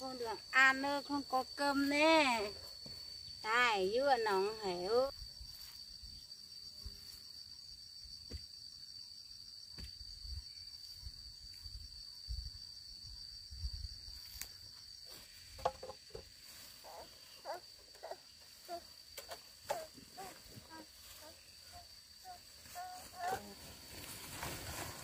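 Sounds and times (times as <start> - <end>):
crickets trilling: 0.0 - 25.0.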